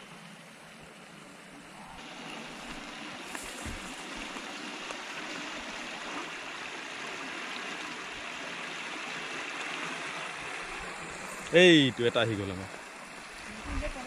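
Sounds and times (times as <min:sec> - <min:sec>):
water rushing over weir: 0:00.0 - 0:14.0.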